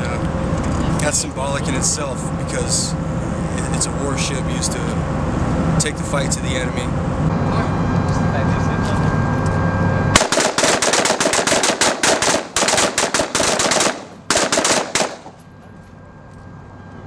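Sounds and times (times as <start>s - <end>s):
rifle shots: 10.2s - 15.4s.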